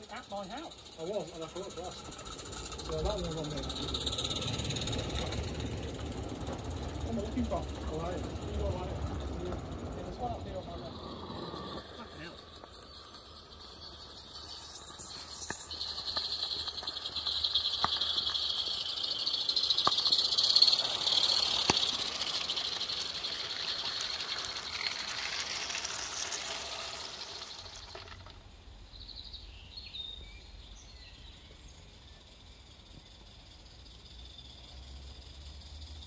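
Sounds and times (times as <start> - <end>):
steam locomotive exhaust hiss: 0.0 - 28.2
wheels clicking on rail joints: 0.0 - 28.7.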